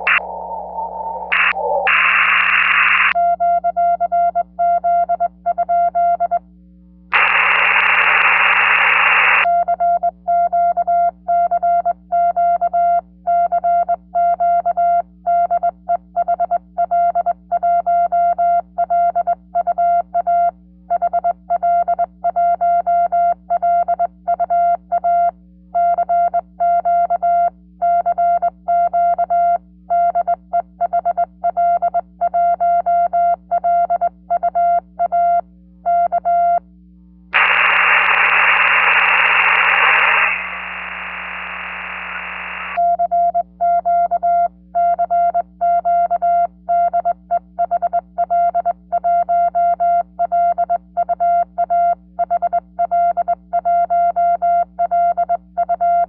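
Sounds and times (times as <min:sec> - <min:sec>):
receiver hiss: 0:00.0 - 0:03.2, 0:07.1 - 0:09.5, 0:37.4 - 0:42.8.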